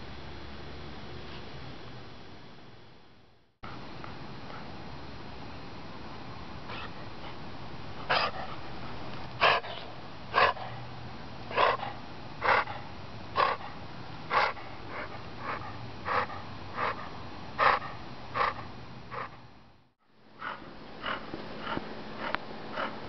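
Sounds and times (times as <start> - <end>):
dog wheezy breathing: 9.4 - 10.9, 11.5 - 19.4, 20.4 - 23.0.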